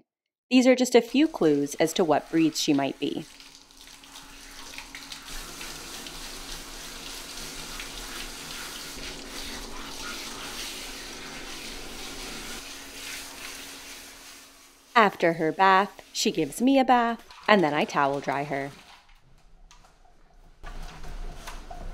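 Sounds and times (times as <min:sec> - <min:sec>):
water spraying from hose: 0:01.0 - 0:19.0
water splashing on tiled floor: 0:01.2 - 0:14.8.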